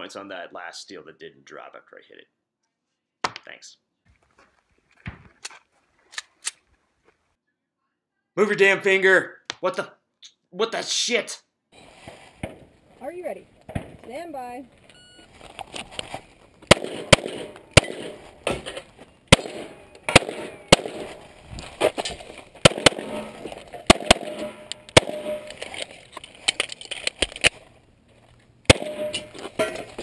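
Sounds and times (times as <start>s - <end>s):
pistol shots: 16.7s - 18.6s, 19.3s - 21.3s, 22.6s - 25.6s, 28.7s - 29.4s.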